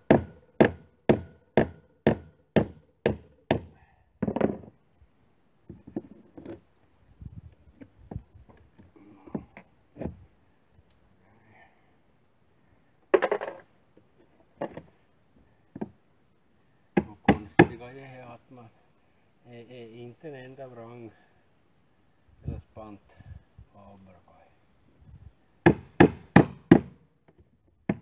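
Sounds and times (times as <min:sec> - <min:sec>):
hammer blows on wooden rail: 0:00.0 - 0:04.7, 0:25.6 - 0:28.0.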